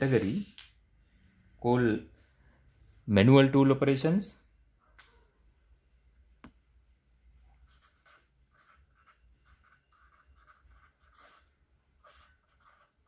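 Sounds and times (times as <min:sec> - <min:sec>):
pen scratching on paper: 0:07.6 - 0:13.0.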